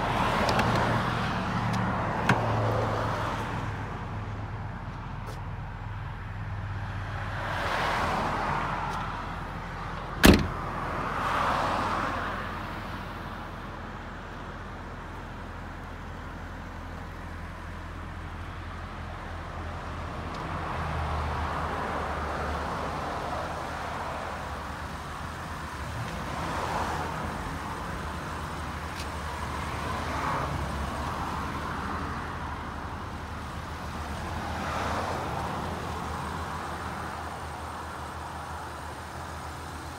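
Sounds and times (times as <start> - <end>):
passing road traffic: 0.0 - 39.9
car hatch slamming: 10.2 - 10.6.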